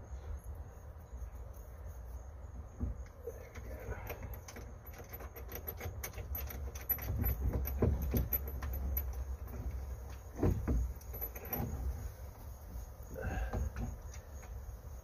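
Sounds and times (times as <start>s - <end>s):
metallic clicks and clinks: 3.4s - 10.3s.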